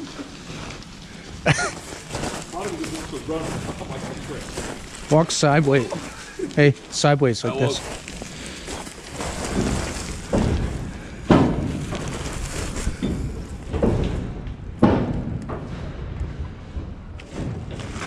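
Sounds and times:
footsteps through dry leaves: 0.0s - 10.9s, 11.7s - 13.1s.

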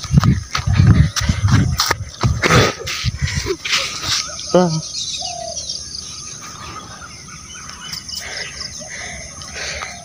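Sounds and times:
birds chirping: 0.0s - 10.0s
insects: 0.0s - 10.0s.

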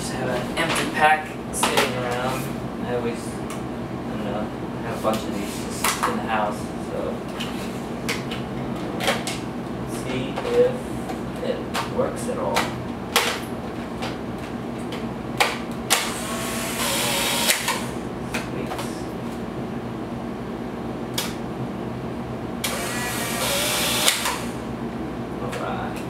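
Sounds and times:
camera motor whirring: 16.0s - 17.9s, 22.6s - 24.6s.

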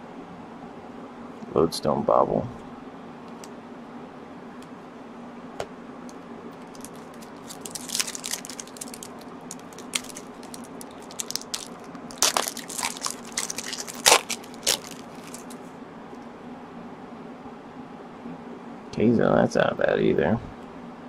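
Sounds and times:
foil wrapper crinkling and tearing: 6.6s - 15.6s.

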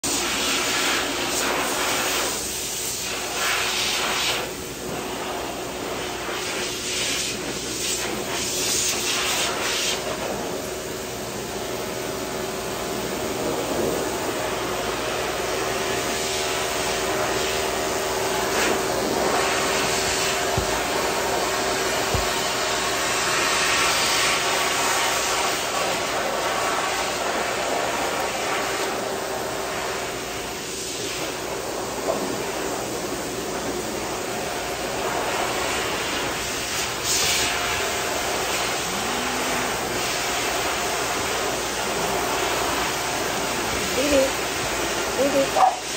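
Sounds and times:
electric clippers buzzing: 11.3s - 29.9s, 37.5s - 42.3s.

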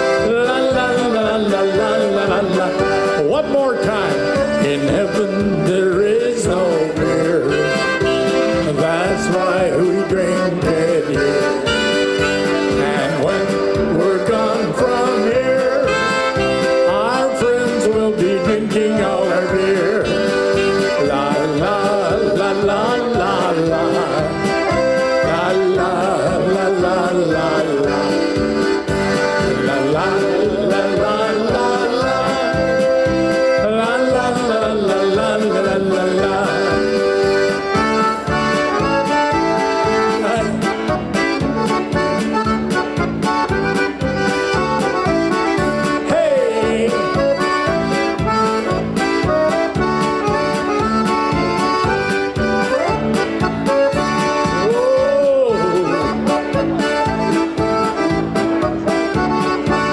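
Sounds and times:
accordion playing melody: 0.0s - 59.9s
keyboard backing: 0.0s - 59.9s
steady beat: 0.0s - 59.9s.

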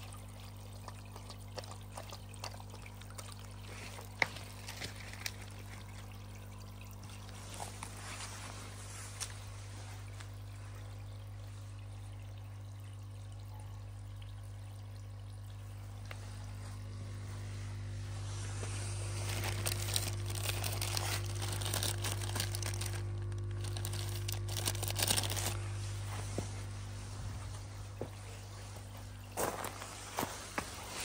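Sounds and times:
low electric hum: 0.0s - 31.0s
plastic bag crinkling: 3.9s - 6.1s, 18.7s - 26.2s.

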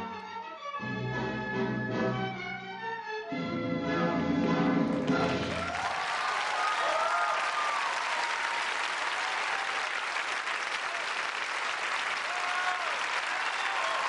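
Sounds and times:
audience applauding: 4.9s - 14.0s.

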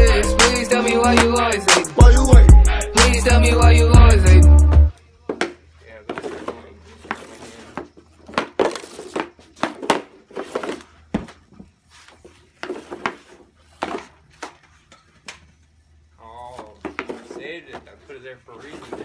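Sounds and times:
hockey stick and pucks clacking: 5.3s - 15.6s, 16.5s - 19.0s.

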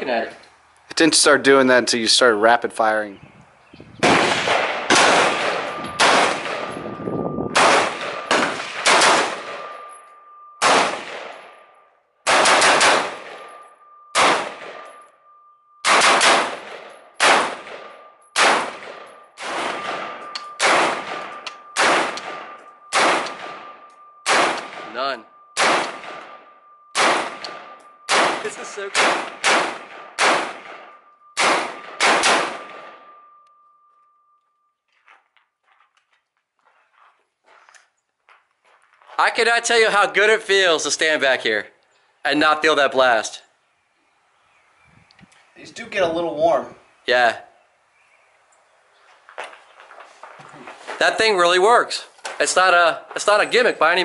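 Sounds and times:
rifle shots echoing: 4.0s - 33.4s.

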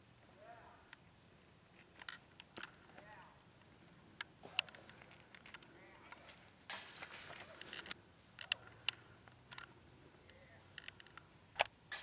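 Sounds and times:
insects buzzing: 0.0s - 12.0s
disc hitting basket chains: 6.7s - 8.0s.

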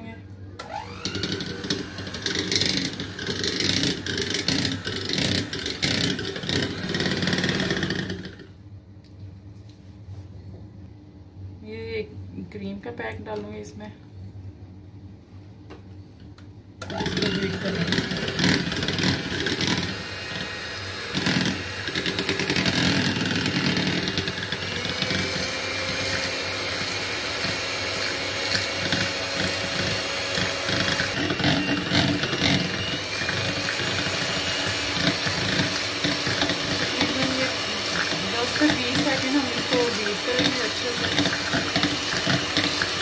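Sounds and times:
electric hand mixer whipping cream: 0.6s - 8.5s, 16.8s - 43.0s.

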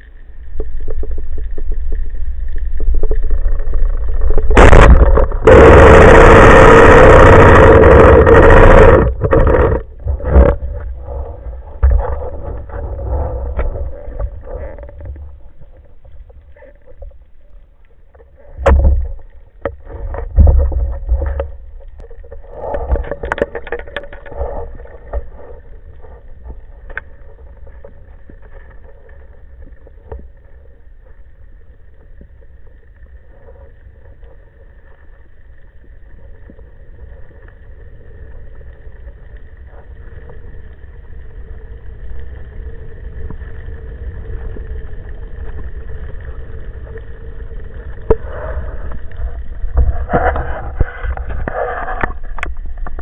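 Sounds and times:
underwater low rumble: 0.0s - 53.0s
faint clicks: 21.2s - 53.0s.

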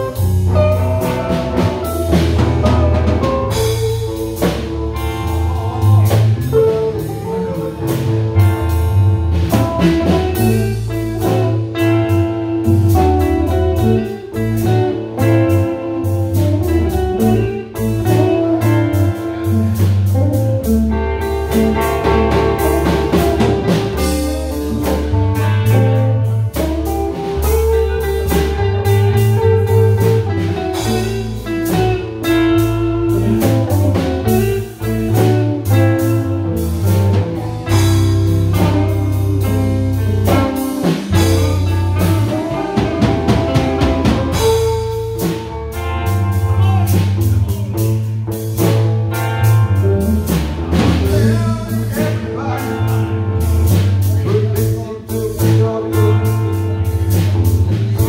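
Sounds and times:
drum kit beat: 0.0s - 58.0s
electric guitars: 0.0s - 58.0s.

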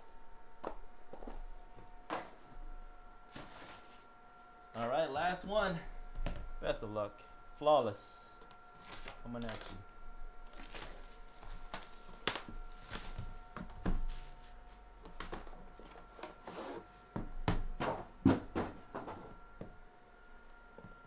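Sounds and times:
plastic wrap crinkling: 8.5s - 9.8s, 10.4s - 14.4s
case knocking in cardboard box: 17.2s - 19.2s.

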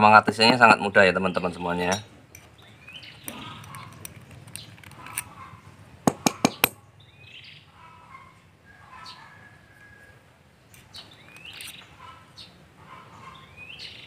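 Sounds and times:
faint birds chirping: 0.0s - 14.0s
sharp metallic clicks: 2.3s - 5.4s, 6.1s - 6.8s.

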